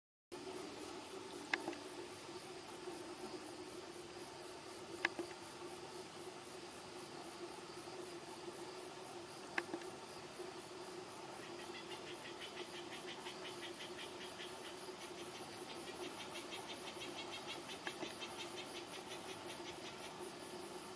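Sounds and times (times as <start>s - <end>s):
second pulsing insect song: 0.3s - 20.9s
insects singing in pulses: 0.4s - 20.9s.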